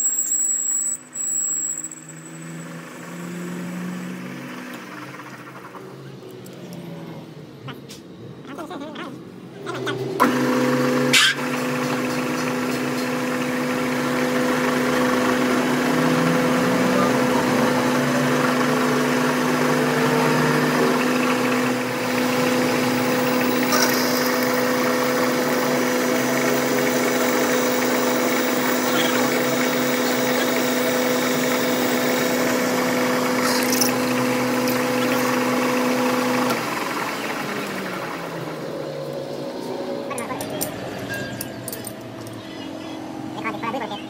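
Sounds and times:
sharp clinks: 0:00.0 - 0:02.8, 0:40.4 - 0:42.5
machine humming: 0:09.3 - 0:44.0.

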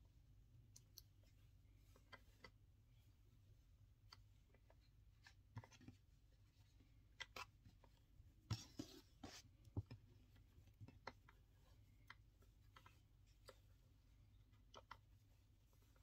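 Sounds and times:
cord brushing on tabletop: 0:08.4 - 0:10.4.

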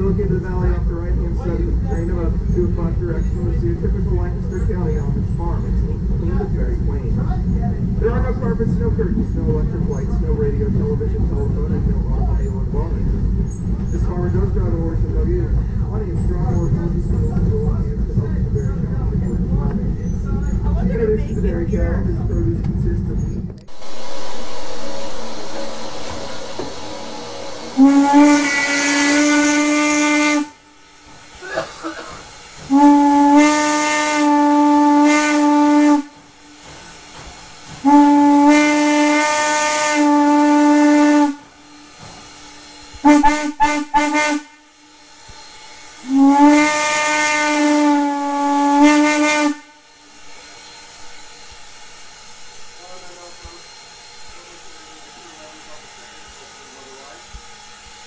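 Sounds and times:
steam whistle blasts: 0:23.7 - 0:30.6, 0:31.4 - 0:36.3, 0:37.8 - 0:42.0, 0:42.6 - 0:51.5
steady steam hiss: 0:23.7 - 0:58.0.

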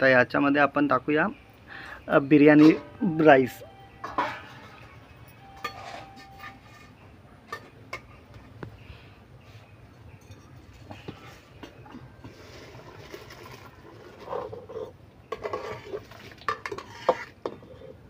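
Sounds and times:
metal spoon scraping metal pot: 0:05.6 - 0:07.0, 0:12.3 - 0:18.0
metal clinks: 0:09.9 - 0:10.8.

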